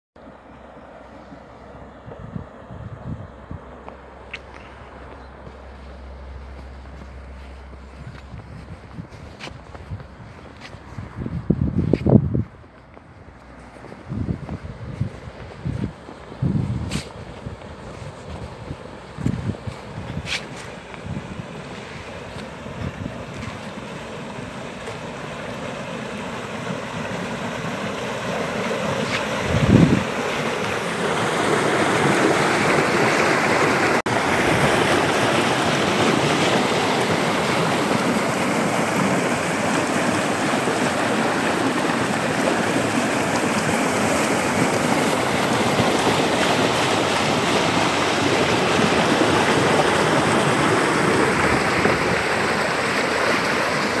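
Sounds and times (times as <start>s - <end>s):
wastewater rushing down a channel: 12.2s - 54.0s.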